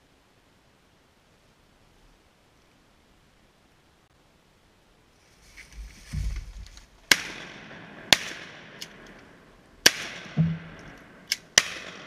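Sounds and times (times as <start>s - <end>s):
shotgun shots echoing: 7.1s - 12.0s.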